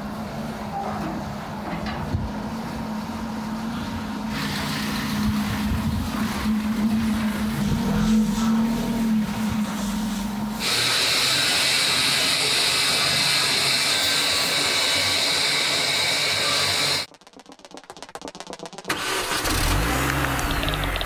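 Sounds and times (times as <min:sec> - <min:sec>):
hydraulic hiss: 0:09.7 - 0:17.0.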